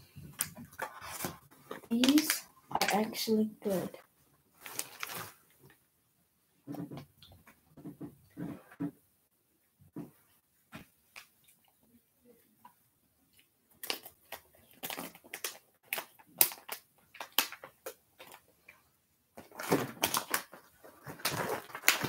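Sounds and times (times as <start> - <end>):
plastic snack package crinkling: 0.4 - 3.3, 4.6 - 5.8, 13.7 - 18.5, 19.4 - 22.0.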